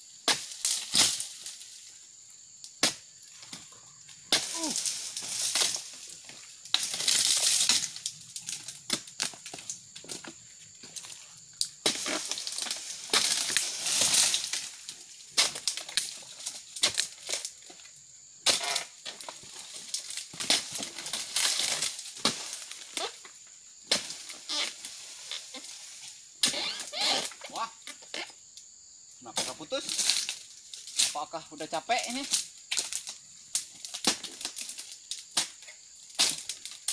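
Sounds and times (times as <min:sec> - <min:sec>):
blade chopping palm fronds: 0:00.2 - 0:01.6, 0:02.8 - 0:03.6, 0:04.3 - 0:10.3, 0:11.8 - 0:17.5, 0:18.4 - 0:23.2, 0:23.8 - 0:25.8, 0:32.2 - 0:36.9
dry fronds crackling and rustling: 0:00.4 - 0:02.0, 0:03.1 - 0:28.3, 0:29.2 - 0:36.9.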